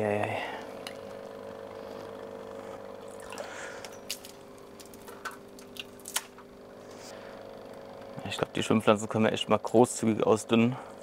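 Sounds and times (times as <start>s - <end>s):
steady low hum: 0.0s - 11.0s
water dripping and splashing: 3.1s - 3.5s.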